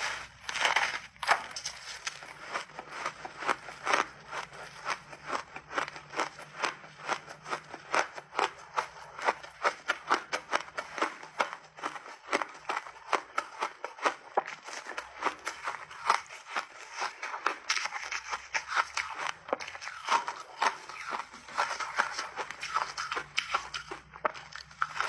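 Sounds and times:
crunchy ice chewing: 0:00.0 - 0:25.0.

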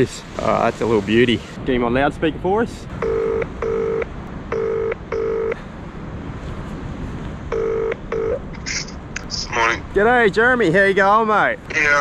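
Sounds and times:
phone ringback tone: 0:03.0 - 0:05.6, 0:07.5 - 0:08.4.

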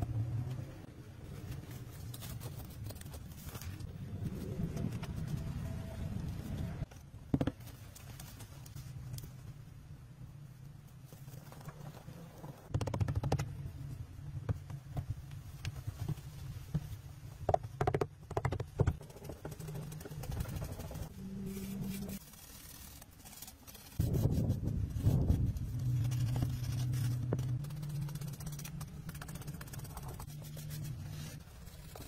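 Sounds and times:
steady low hum: 0:23.9 - 0:32.0.

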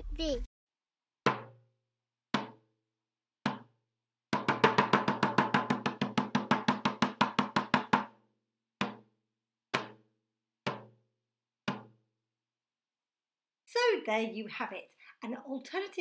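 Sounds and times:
drum beats: 0:04.4 - 0:08.1.

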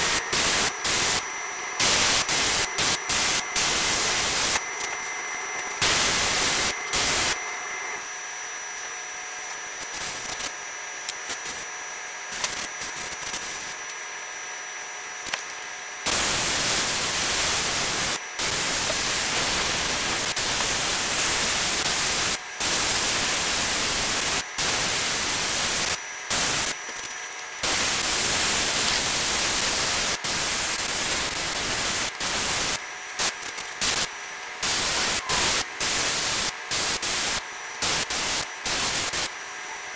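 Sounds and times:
airbrush hissing: 0:00.0 - 0:04.9, 0:05.8 - 0:07.4, 0:33.8 - 0:39.3.

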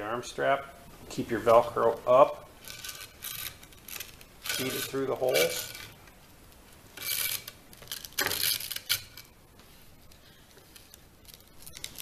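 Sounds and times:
velcro strap rustling scrapes: 0:02.6 - 0:12.0.

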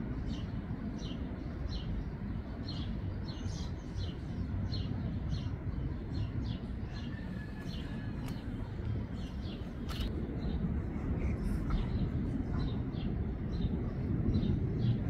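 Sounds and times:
low background rumble: 0:00.0 - 0:15.0
bird chirping: 0:00.2 - 0:10.6.

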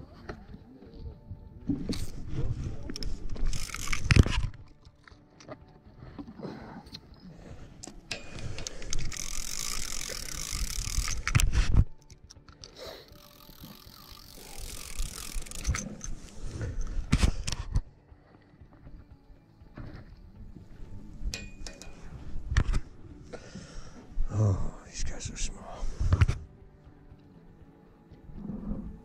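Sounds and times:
fishing reel ratchet whirring: 0:02.9 - 0:04.8, 0:07.9 - 0:17.6.

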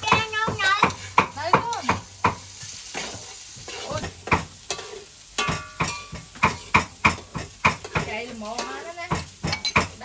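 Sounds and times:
frying sizzle: 0:00.0 - 0:10.0
metal ladle scraping wok: 0:00.6 - 0:10.0.

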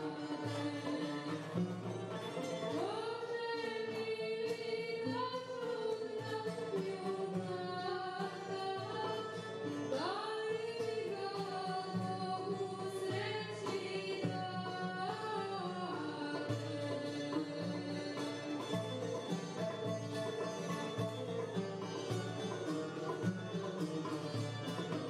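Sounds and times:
woman singing: 0:00.0 - 0:01.9, 0:02.7 - 0:19.0
plucked lute and oud: 0:00.0 - 0:25.0.

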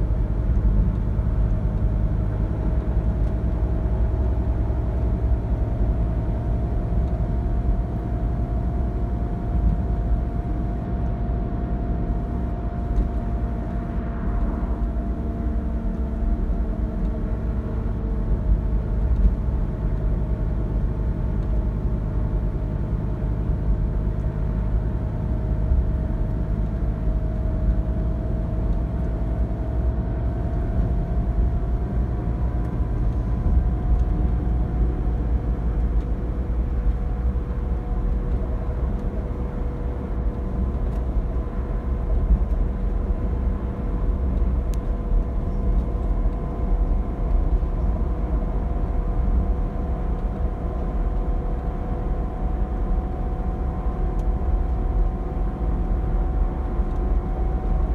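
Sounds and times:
bus diesel engine and road drone: 0:00.0 - 0:57.9.

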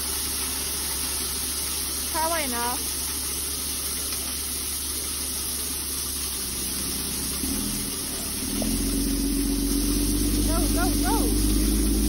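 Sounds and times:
gravel pouring: 0:00.0 - 0:12.0
truck engine humming: 0:04.9 - 0:12.0.

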